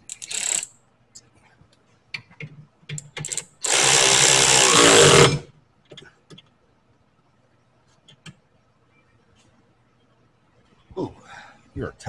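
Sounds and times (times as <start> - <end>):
power ratchet running: 0.0 - 0.7, 3.2 - 5.4.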